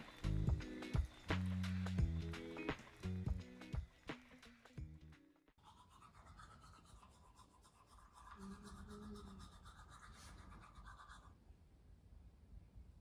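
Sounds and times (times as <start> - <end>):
faint low hum: 6.2 - 13.0.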